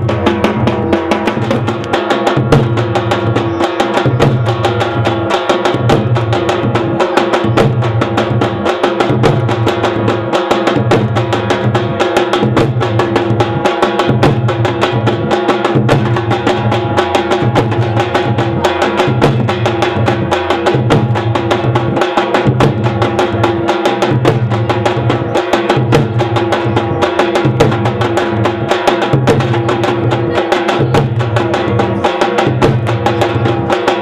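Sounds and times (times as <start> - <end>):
deep booming bass drums: 0.0 - 23.5
large drums beating fast: 0.0 - 34.0.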